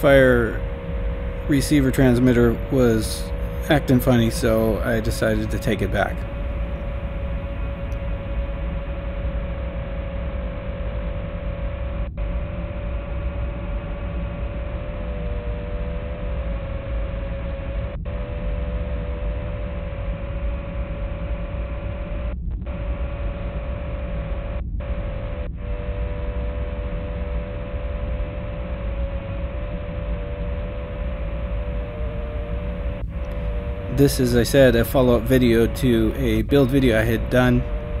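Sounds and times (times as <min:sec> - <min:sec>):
wavering mid-pitched tone: 0:00.0 - 0:10.8, 0:25.7 - 0:38.0
electrical hum and hiss: 0:00.0 - 0:38.0.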